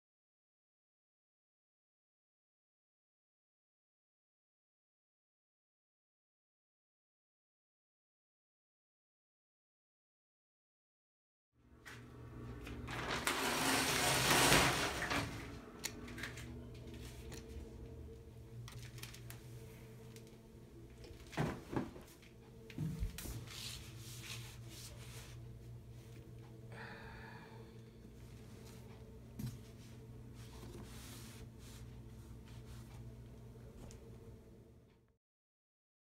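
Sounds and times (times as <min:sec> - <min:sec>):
rustling and handling noise: 0:11.9 - 0:26.4, 0:28.1 - 0:34.3
steady low hum: 0:15.1 - 0:35.1.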